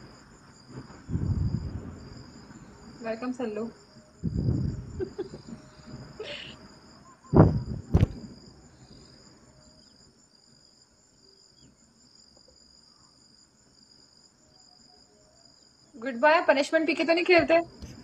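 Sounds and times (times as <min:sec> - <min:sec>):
cricket-like chirping: 0:00.0 - 0:18.0
sharp knock: 0:07.4 - 0:08.3.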